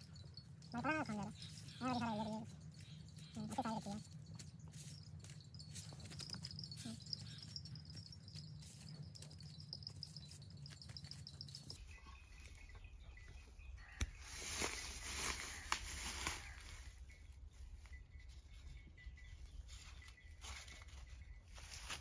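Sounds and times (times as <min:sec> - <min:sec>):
rapidly pulsing high chirp: 0:00.0 - 0:13.8
dry leaves rustling and clicking: 0:00.7 - 0:11.8, 0:13.9 - 0:17.1, 0:19.7 - 0:22.0.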